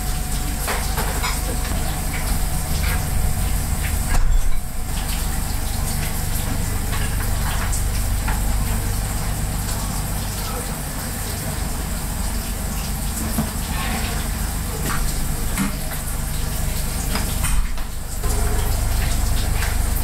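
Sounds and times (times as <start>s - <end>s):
low hum: 0.0s - 10.4s
running water: 0.0s - 20.0s.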